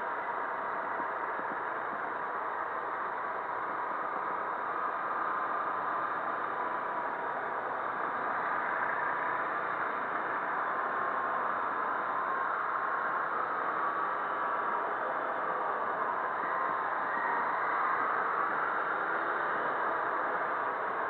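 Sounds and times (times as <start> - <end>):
road and wind noise: 0.0 - 21.0.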